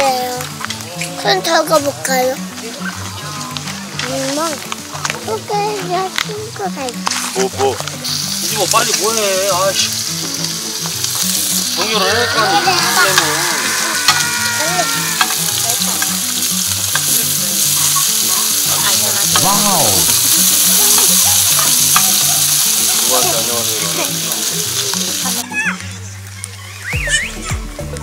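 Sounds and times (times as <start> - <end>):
pork sizzling on a grill pan: 0.0 - 27.7
tongs clicking: 14.0 - 23.0.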